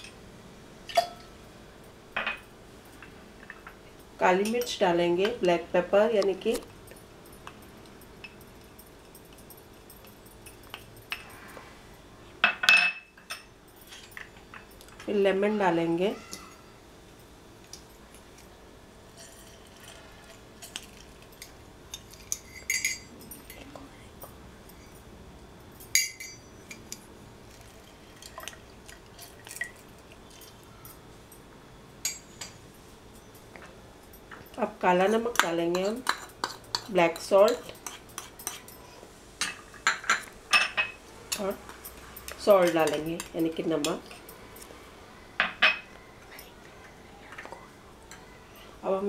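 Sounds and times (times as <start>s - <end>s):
glass clinking: 0.9s - 1.3s, 12.4s - 14.8s, 21.9s - 23.6s, 25.8s - 26.8s, 39.4s - 41.4s
utensils and glassware clicking: 20.6s - 23.8s, 25.8s - 27.0s, 35.4s - 38.8s.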